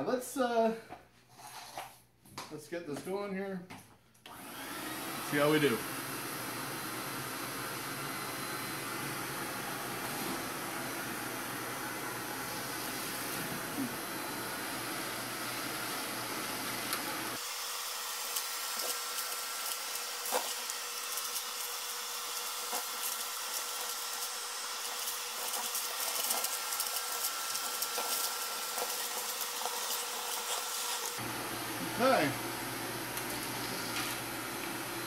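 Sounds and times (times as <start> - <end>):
dust extractor running with whine: 4.3 - 35.0
wood chips rattling in hose: 18.2 - 31.2.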